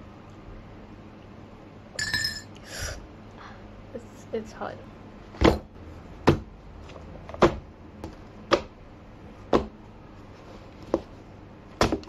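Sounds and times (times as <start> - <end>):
books thumping on wooden desk: 5.4 - 6.5, 7.3 - 8.7, 9.5 - 9.8, 11.8 - 12.0.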